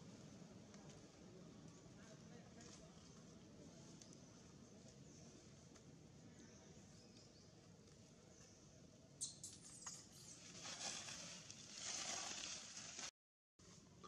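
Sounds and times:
dry leaves crackling and rustling: 10.3 - 13.1.

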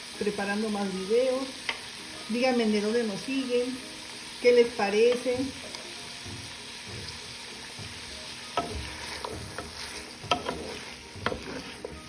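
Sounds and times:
vegetables sizzling in a pot: 0.0 - 12.0
spoon knocking and scraping pot: 7.8 - 12.0.

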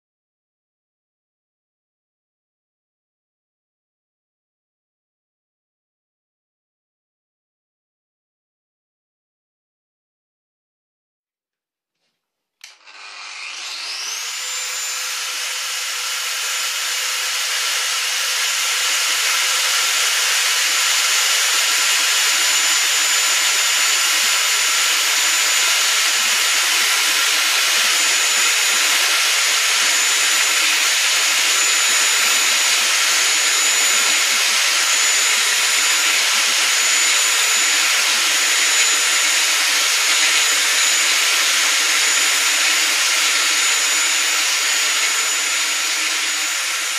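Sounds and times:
angle grinder whine: 12.6 - 46.9
drill bit grinding into tile: 12.6 - 46.9.

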